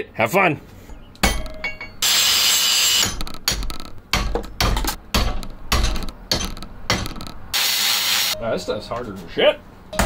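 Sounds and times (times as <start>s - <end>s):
angle grinder cutting steel: 2.0s - 3.1s.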